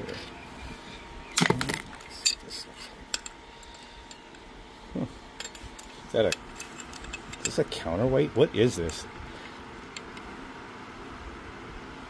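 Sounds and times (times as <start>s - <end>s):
steel parts clinking and knocking: 3.1s - 4.4s, 5.4s - 7.7s.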